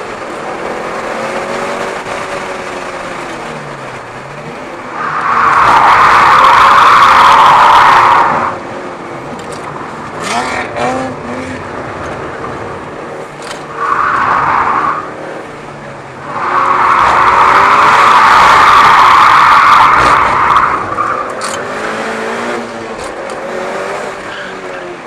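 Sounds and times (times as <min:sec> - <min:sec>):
engine revving with clicks: 0:13.3 - 0:14.3, 0:16.6 - 0:24.2.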